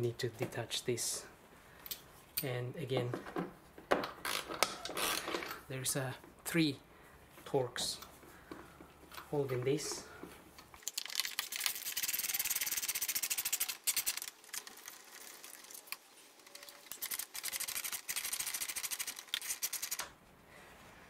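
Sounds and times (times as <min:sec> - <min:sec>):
ratchet wrench clicking: 0:11.2 - 0:14.3, 0:16.9 - 0:20.1.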